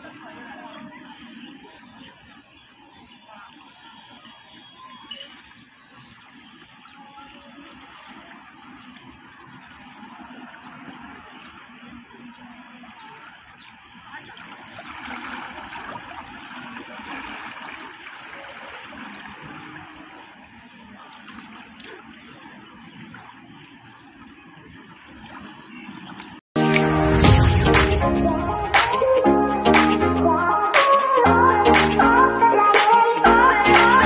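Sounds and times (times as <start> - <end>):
seawater lapping among rocks: 0.0 - 26.5.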